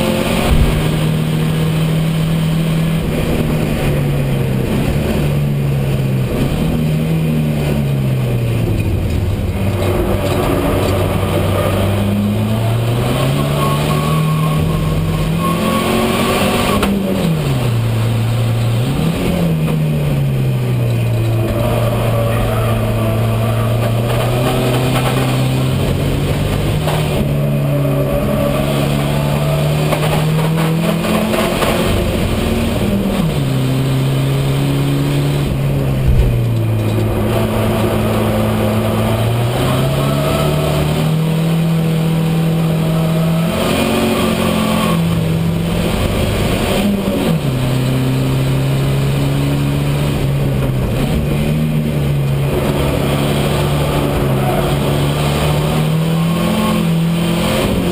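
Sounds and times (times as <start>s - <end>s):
racing car engine revving: 0.0s - 57.9s
brief knock: 0.4s - 1.0s.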